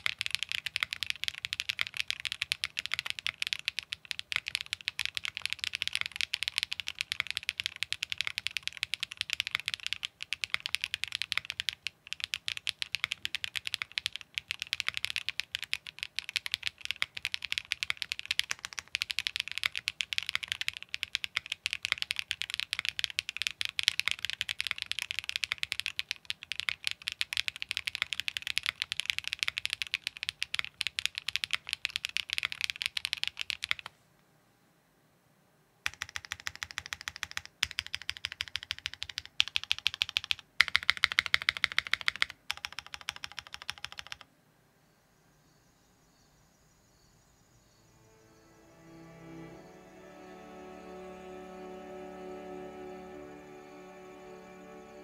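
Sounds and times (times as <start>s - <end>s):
fast mechanical keyboard typing: 0.0s - 33.9s, 35.8s - 44.3s.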